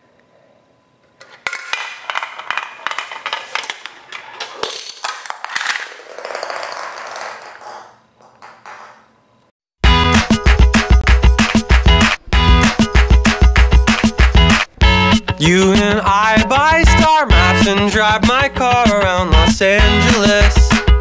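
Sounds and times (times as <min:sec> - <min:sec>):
steel ball rolling on plastic track: 0:01.7 - 0:09.1.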